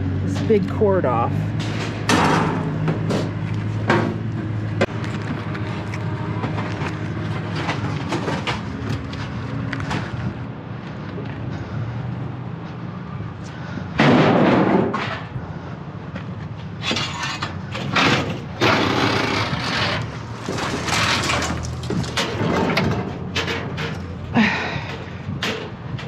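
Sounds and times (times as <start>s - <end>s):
scrap metal banging and crashing: 1.4s - 10.4s, 13.9s - 15.4s, 16.7s - 26.0s.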